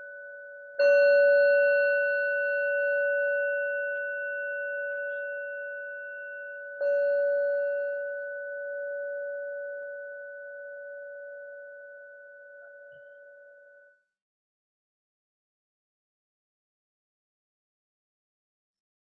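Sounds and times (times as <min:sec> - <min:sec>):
singing bowl ringing: 0:00.0 - 0:14.1.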